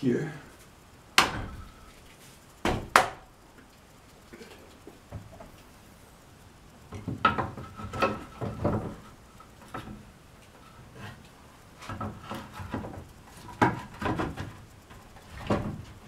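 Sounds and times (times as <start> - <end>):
wooden knocks: 6.9 - 10.0, 11.8 - 14.6
wood scraping on wood: 6.9 - 16.0.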